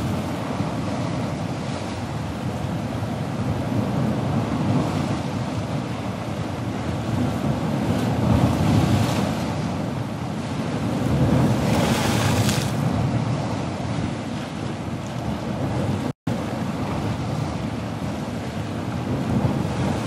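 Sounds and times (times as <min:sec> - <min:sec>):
ocean surf breaking: 0:00.0 - 0:20.0.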